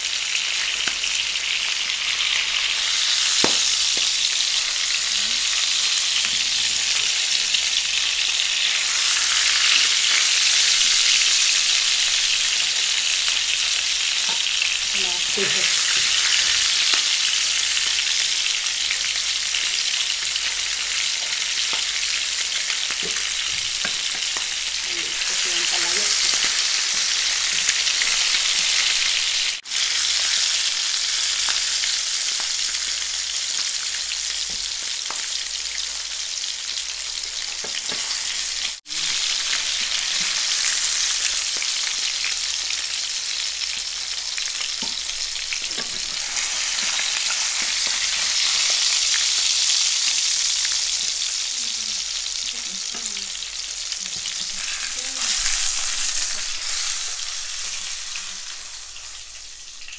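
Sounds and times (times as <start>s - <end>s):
fish sizzling in a pan: 0.0s - 59.9s.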